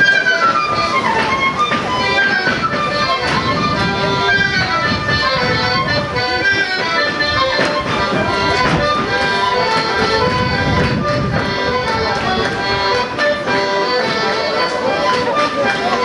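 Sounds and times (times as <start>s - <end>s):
accordion folk dance tune: 0.0s - 16.0s
sharp knocks: 0.5s - 13.1s.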